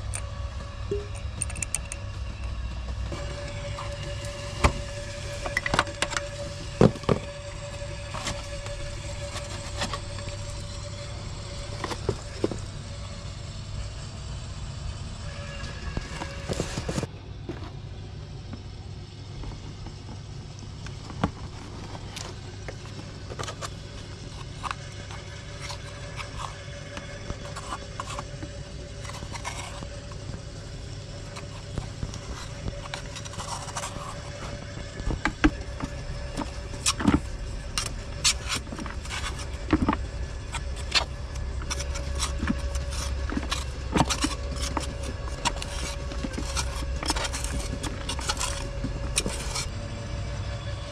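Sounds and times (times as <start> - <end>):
low mechanical hum: 0.0 - 50.9
metallic tool clicks: 0.9 - 2.0.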